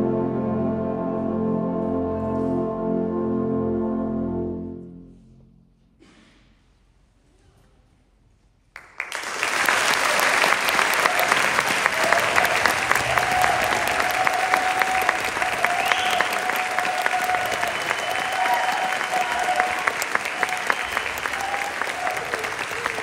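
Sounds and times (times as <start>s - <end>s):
audience applause: 8.8s - 23.0s.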